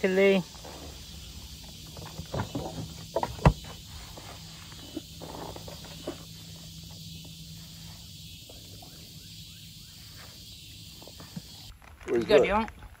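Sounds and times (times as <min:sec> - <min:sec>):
high hiss: 0:00.0 - 0:11.7
steady low hum: 0:00.0 - 0:11.8
knocks and rustles in boat: 0:01.6 - 0:04.4.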